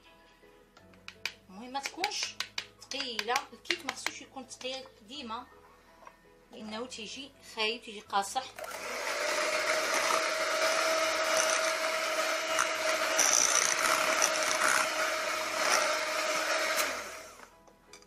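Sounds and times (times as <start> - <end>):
electric hand mixer whining: 8.6 - 17.5.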